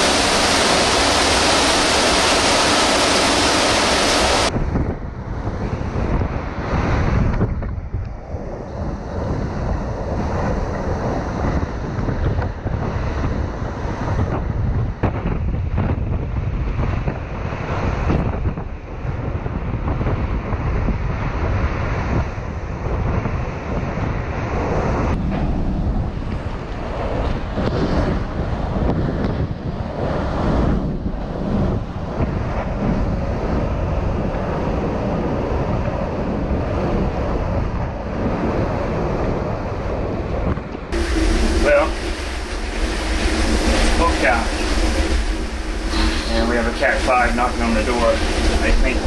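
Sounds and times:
wind buffeting microphone: 0.0s - 49.0s
wind-driven rain: 0.0s - 49.0s.

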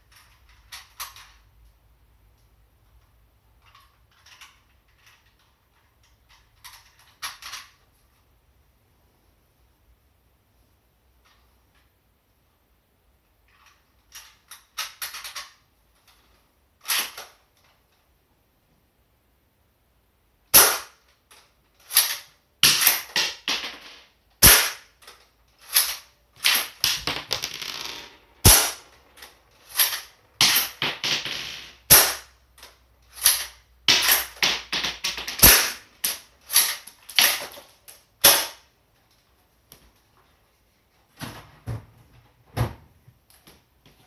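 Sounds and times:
airsoft rifle shots: 20.5s - 21.0s, 21.9s - 24.9s, 28.4s - 29.0s, 29.7s - 32.3s, 33.2s - 37.4s, 38.2s - 38.6s.

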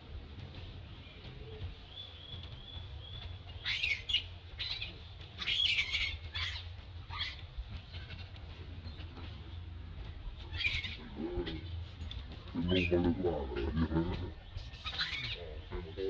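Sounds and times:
high-pitched chirping calls: 2.0s - 7.4s.

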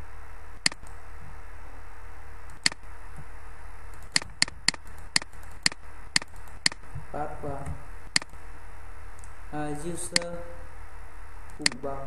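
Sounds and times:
recording hiss and hum: 0.0s - 12.0s
computer mouse clicks: 0.6s - 1.0s, 2.5s - 3.3s, 3.9s - 7.0s, 7.6s - 8.4s, 9.2s - 9.4s, 10.1s - 10.3s, 11.5s - 11.8s.

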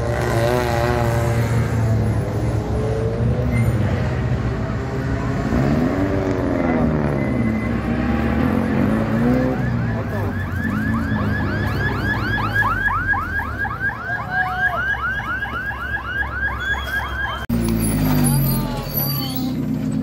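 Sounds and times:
car engine: 0.0s - 14.0s, 17.2s - 20.0s
siren fast yelp: 9.2s - 17.5s.

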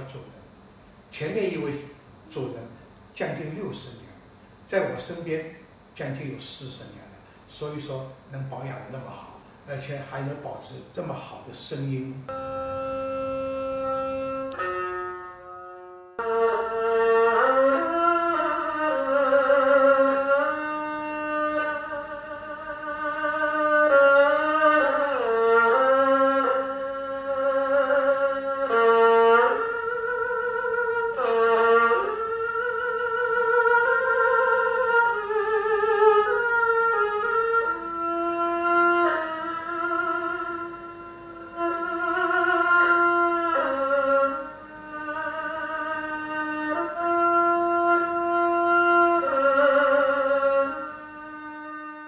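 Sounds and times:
erhu slow melody: 0.0s - 0.3s, 12.0s - 52.0s.

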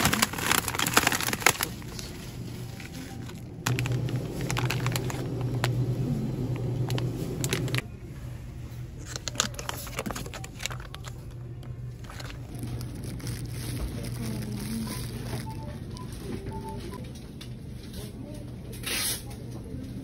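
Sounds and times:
plastic packaging crinkling: 0.0s - 7.9s, 9.0s - 16.5s
steady low hum: 2.1s - 18.7s.

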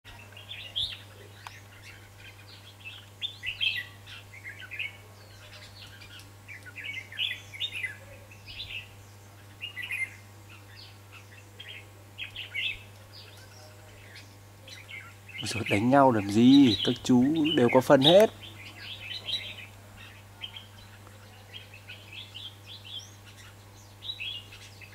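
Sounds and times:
birds singing chirping phrases: 0.1s - 24.9s.

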